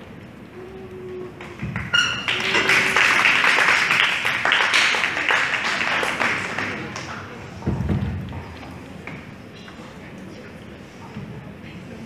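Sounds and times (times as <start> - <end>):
audience clapping: 1.1 - 7.5.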